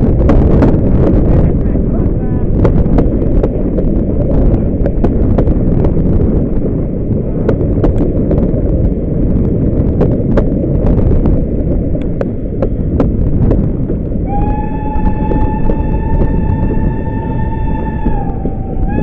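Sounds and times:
train running at speed: 0.0 - 19.0
steam locomotive whistle: 14.2 - 19.0.

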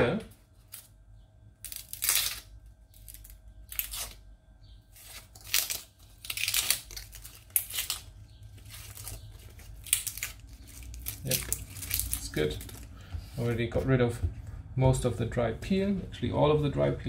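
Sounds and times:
onion skin crackling and tearing: 0.6 - 0.9, 1.6 - 4.3, 4.9 - 13.0.

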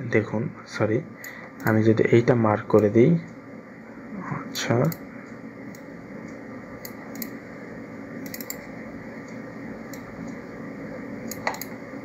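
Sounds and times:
room hiss: 0.0 - 12.0
computer mouse clicks: 1.2 - 1.8, 4.5 - 7.4, 8.2 - 10.4, 11.2 - 11.8.

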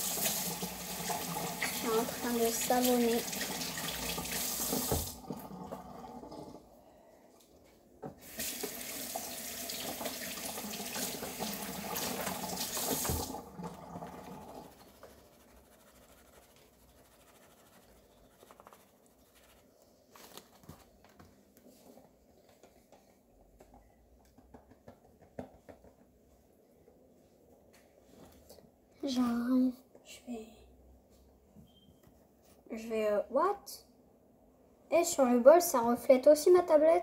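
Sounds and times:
tap running into sink: 3.2 - 5.9, 8.0 - 14.3
rustling: 14.6 - 23.0.

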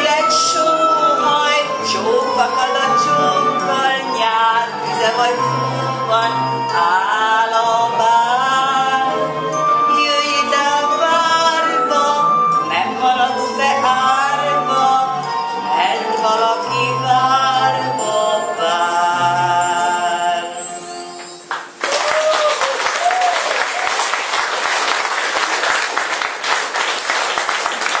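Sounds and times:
accompaniment music: 0.0 - 22.0
audience applauding: 21.2 - 28.0.

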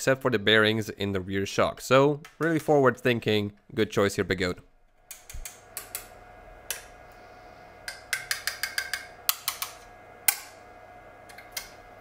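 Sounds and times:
sharp metallic clicks and taps: 7.9 - 10.5.

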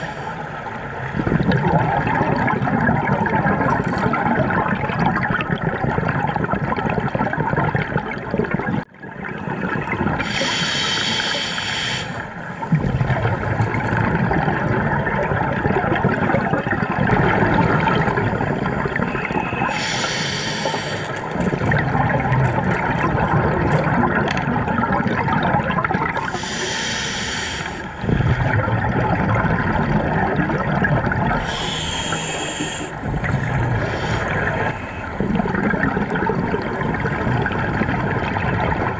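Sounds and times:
muffled underwater noise: 9.2 - 38.9
diver exhaling air bubbles: 12.7 - 38.9.

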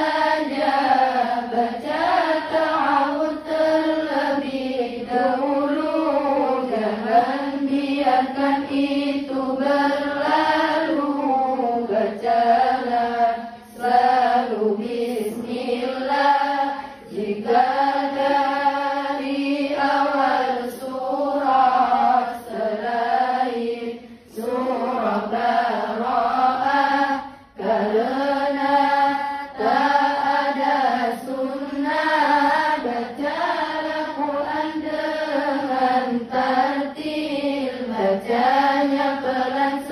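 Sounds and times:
girls chanting in unison: 0.0 - 39.9.

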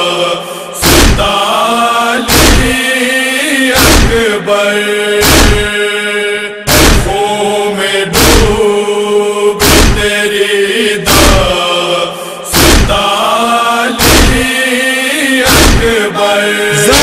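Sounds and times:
chorus chanting a drone: 0.0 - 17.0
chest-beating thumps: 0.8 - 1.3, 2.3 - 2.7, 3.8 - 4.2, 5.2 - 5.7, 6.7 - 7.1, 9.6 - 10.0, 12.6 - 13.0, 14.0 - 14.4, 15.5 - 15.9, 16.7 - 17.0.

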